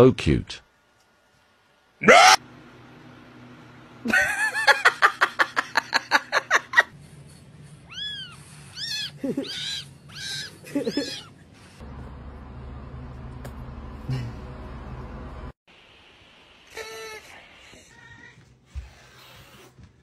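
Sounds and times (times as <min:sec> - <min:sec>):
cat meowing: 0:07.9 - 0:11.3.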